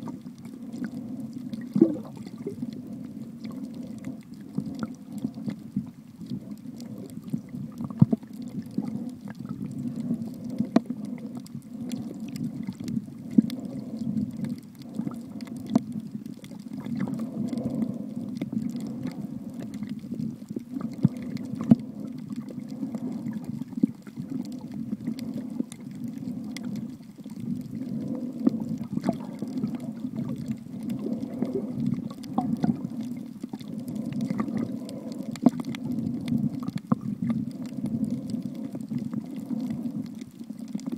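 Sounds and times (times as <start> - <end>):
underwater water rumble: 0.0 - 40.9.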